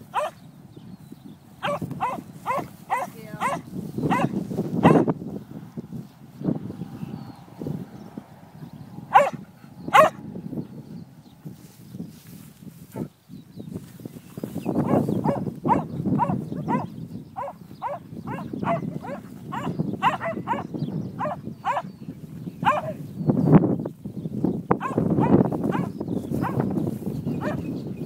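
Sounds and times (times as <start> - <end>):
alpacas alarm calling: 0.0 - 0.5, 1.4 - 5.1, 9.0 - 11.2, 14.5 - 23.1, 24.7 - 28.0.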